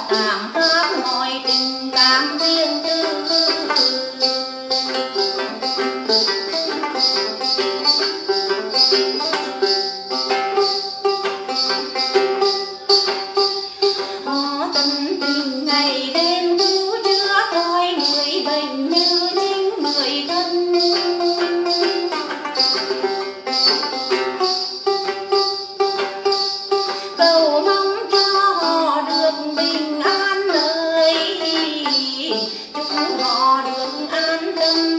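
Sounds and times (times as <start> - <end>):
woman singing: 0.0 - 5.8, 14.1 - 22.4, 27.1 - 34.9
jingling beat: 0.0 - 34.9
plucked lute notes: 0.0 - 34.9.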